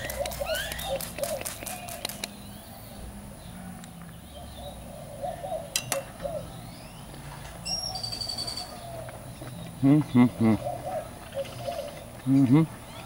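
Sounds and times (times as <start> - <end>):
sharp clicks: 0.0 - 2.4
birds calling: 0.0 - 13.0.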